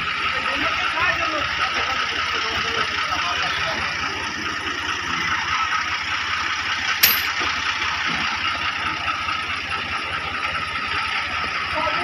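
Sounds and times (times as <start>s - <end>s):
tractor diesel engine idling: 0.0s - 12.0s
sharp metallic clank: 7.0s - 7.5s.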